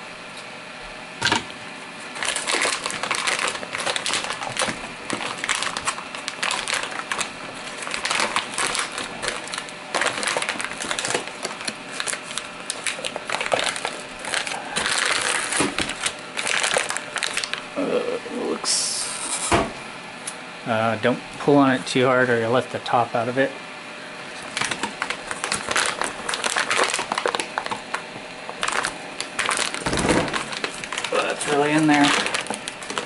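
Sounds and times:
plastic bag crinkling: 0:02.1 - 0:17.8, 0:24.4 - 0:33.0.

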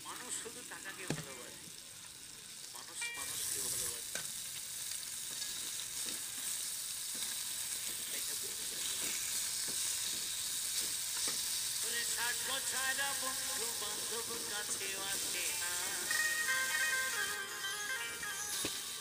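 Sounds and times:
fish sizzling in hot oil: 0:00.0 - 0:19.0
tune: 0:15.4 - 0:19.0.

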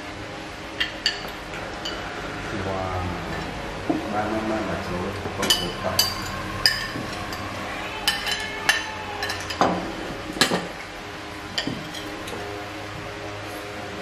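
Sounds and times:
metal spoons clinking on ceramic bowls: 0:05.4 - 0:10.7, 0:11.5 - 0:12.4.

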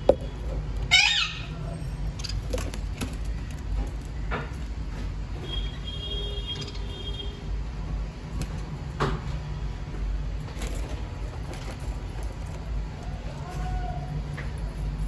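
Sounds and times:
parrots chirping: 0:00.9 - 0:02.5.

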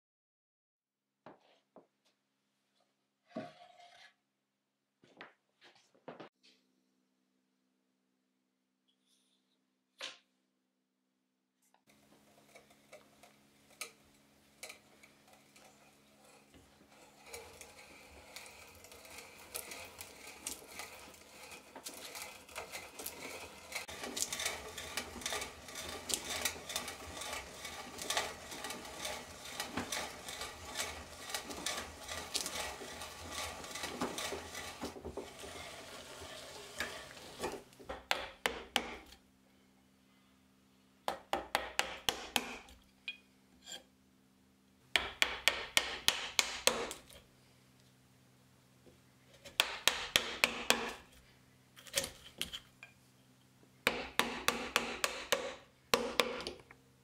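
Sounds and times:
auger bit boring into wood: 0:11.9 - 0:39.2
chisel sharp taps: 0:37.9 - 0:39.2, 0:41.1 - 0:42.7, 0:45.0 - 0:47.0, 0:53.9 - 0:56.6.

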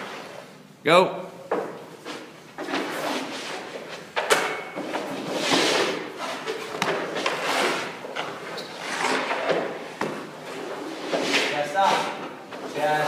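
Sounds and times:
skate blades scraping ice: 0:05.1 - 0:13.0.

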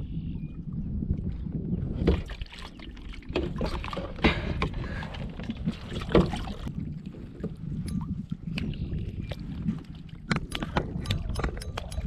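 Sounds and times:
knocks and rubs on kayak hull: 0:03.3 - 0:07.7.

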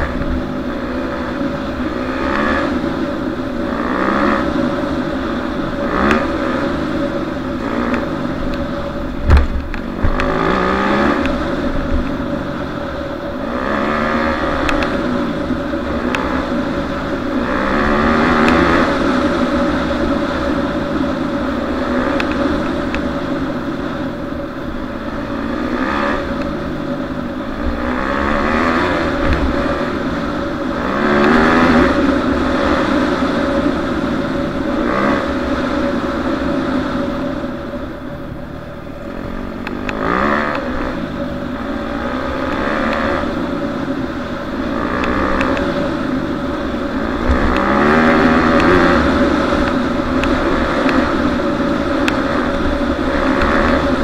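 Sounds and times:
dirt bike engine revving: 0:00.0 - 0:37.9, 0:38.6 - 0:54.0
wind buffeting microphone: 0:07.2 - 0:13.1.

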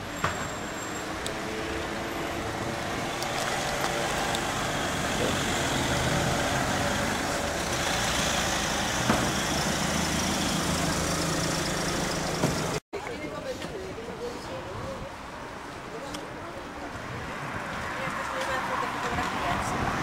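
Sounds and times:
car and van engines: 0:00.0 - 0:12.8
street noise hum: 0:00.0 - 0:20.0.

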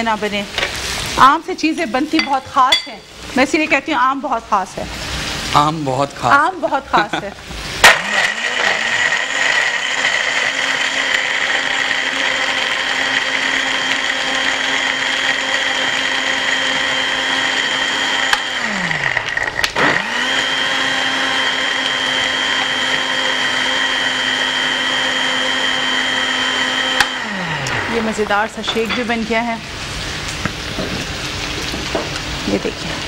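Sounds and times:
electric blender whining: 0:07.7 - 0:28.6.

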